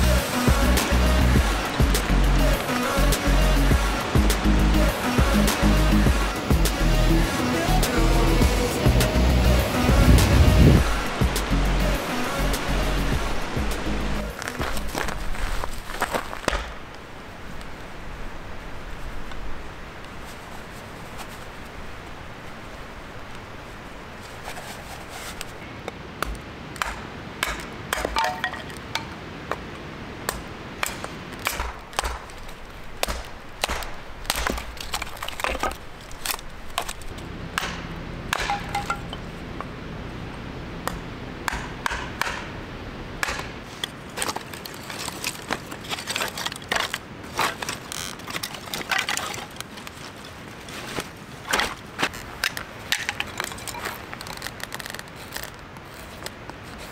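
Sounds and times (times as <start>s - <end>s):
wood cracking apart: 14.3s - 17.0s, 30.8s - 39.2s, 43.2s - 50.4s, 51.0s - 56.4s
hatchet chopping wood: 26.2s - 29.1s, 30.3s - 36.9s, 37.6s - 39.2s, 40.9s - 42.5s, 43.2s - 43.6s.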